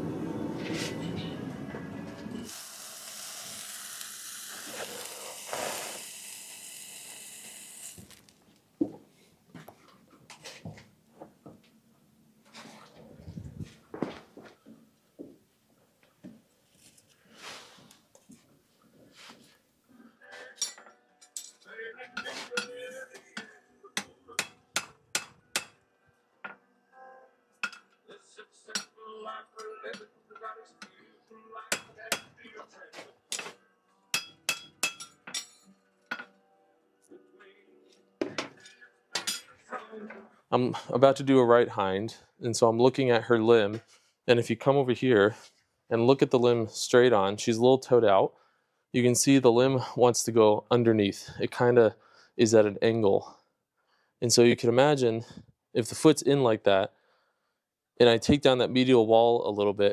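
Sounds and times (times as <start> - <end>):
forge burner roaring: 0.0 - 8.2
hot metal hissing and sizzling: 2.4 - 8.3
hammer striking horseshoe on anvil: 24.0 - 25.8, 31.7 - 32.3, 34.1 - 36.3.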